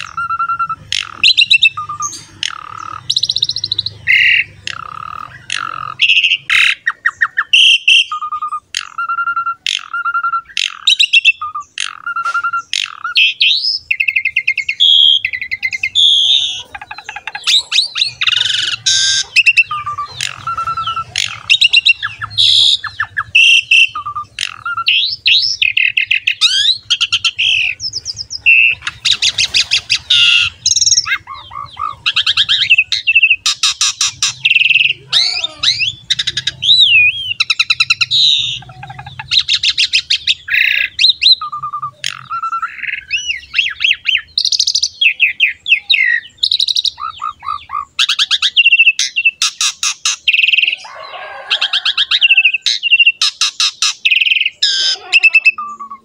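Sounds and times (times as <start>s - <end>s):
starling singing: 0.0s - 56.0s.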